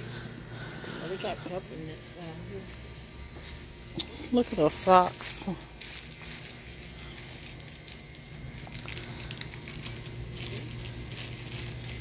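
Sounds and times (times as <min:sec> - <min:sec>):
steady low hum: 0:00.0 - 0:12.0
small ticks and rustles: 0:02.6 - 0:12.0.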